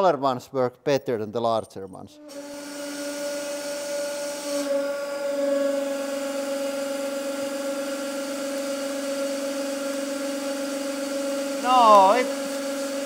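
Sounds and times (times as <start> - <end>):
hydraulic press humming: 2.2 - 6.5.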